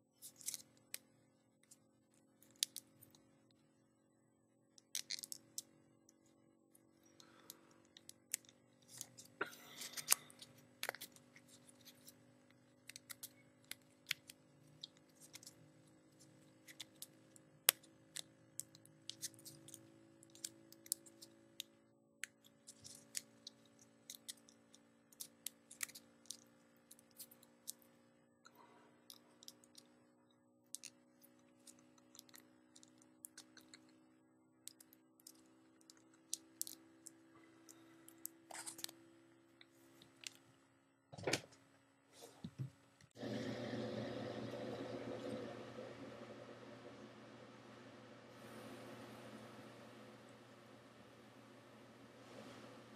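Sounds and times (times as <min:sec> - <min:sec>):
steady low hum: 0:00.0 - 0:52.9.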